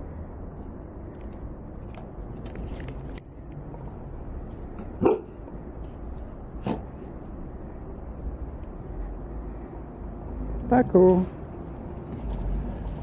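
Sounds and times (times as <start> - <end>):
dog barking: 5.0 - 5.4.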